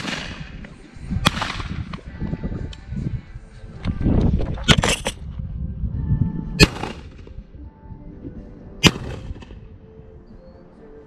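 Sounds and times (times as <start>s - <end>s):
shotgun shots: 0.0s - 0.6s, 1.2s - 1.9s, 6.6s - 7.4s, 8.8s - 9.6s
low wind rumble: 0.0s - 11.0s.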